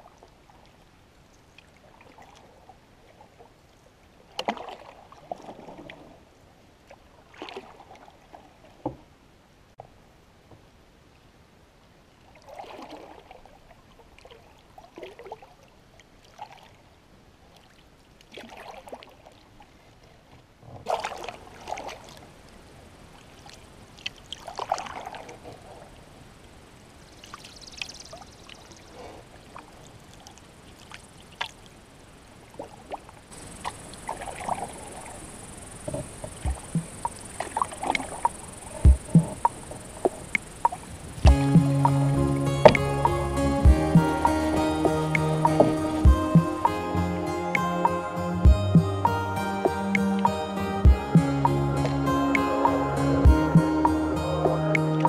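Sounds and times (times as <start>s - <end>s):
paddle swishing through water: 0.0s - 9.1s, 12.2s - 26.2s, 32.4s - 46.7s
water drips and clicks: 4.4s - 4.8s, 35.8s - 42.0s, 42.6s - 42.9s.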